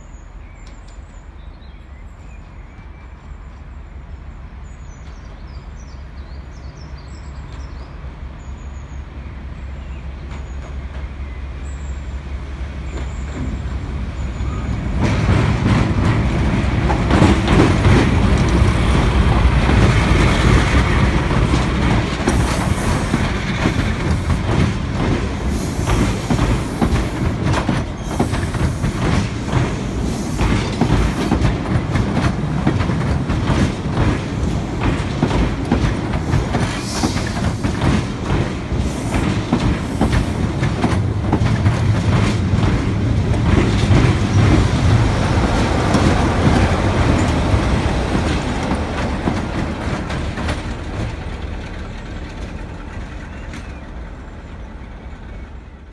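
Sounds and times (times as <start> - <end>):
diesel locomotive passing: 0.0 - 55.9
train wheels clacking over rail joints: 14.4 - 54.4.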